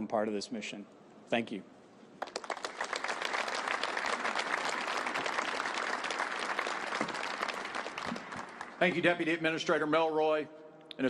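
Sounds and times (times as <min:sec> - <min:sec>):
audience applause: 0:02.2 - 0:09.0.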